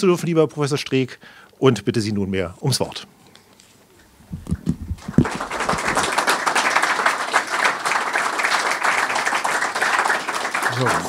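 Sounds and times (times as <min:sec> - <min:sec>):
audience applauding: 0:05.0 - 0:11.0.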